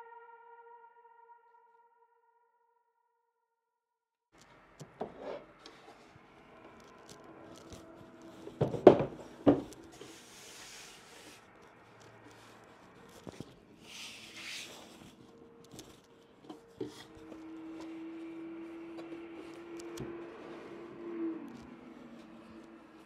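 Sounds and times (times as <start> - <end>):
panels rubbing and sliding: 5.0 - 6.2, 6.8 - 11.6, 12.2 - 16.0
boards knocking together: 8.6 - 9.7.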